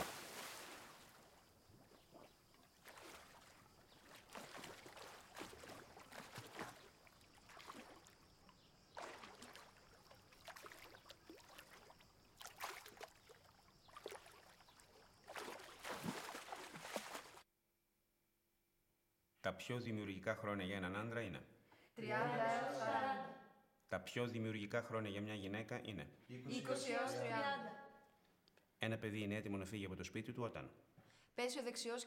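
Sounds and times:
swimmer splashing: 0.0s - 1.4s, 2.1s - 17.4s.

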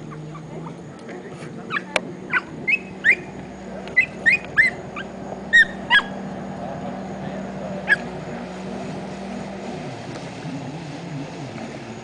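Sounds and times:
short high animal calls: 4.0s - 6.2s.

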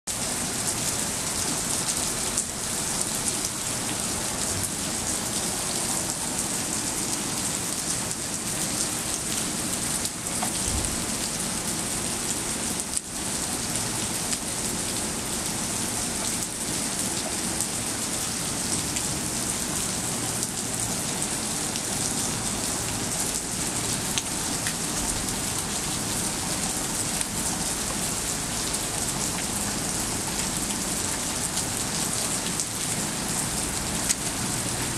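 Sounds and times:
rain on wet pavement: 0.1s - 34.9s.

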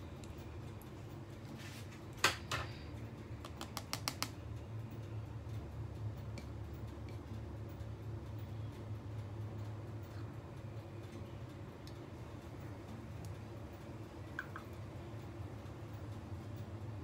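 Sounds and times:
low steady hum: 0.0s - 17.0s
light clicks and taps: 3.4s - 4.4s.

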